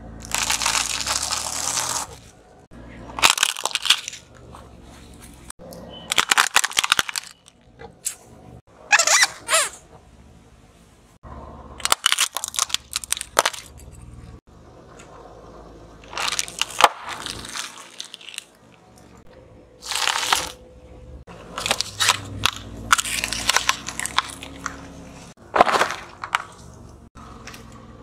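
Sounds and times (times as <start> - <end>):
crisp packet crackling: 0.2 - 2.2, 3.2 - 4.2, 6.1 - 7.5, 11.8 - 13.7, 16.0 - 18.6, 19.8 - 20.6
sharp cracks and pops: 0.2 - 2.3, 3.2 - 4.4, 6.1 - 8.2, 11.8 - 13.7, 16.0 - 19.2, 21.6 - 24.8
tyre crushing objects: 0.2 - 2.4, 16.0 - 18.5, 21.4 - 27.1.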